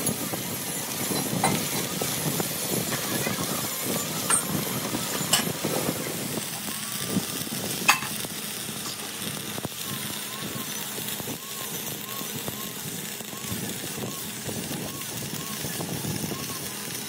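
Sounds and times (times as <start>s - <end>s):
electric arc welding sizzle: 0.0s - 17.0s
sharp pops from welding arc: 4.0s - 5.6s, 6.5s - 17.0s.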